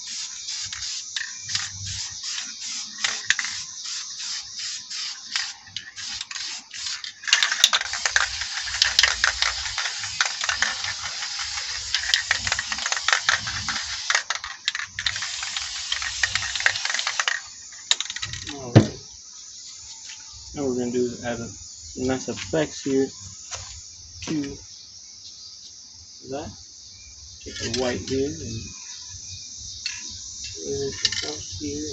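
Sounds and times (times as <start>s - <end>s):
spray paint can hissing: 0.0s - 18.5s.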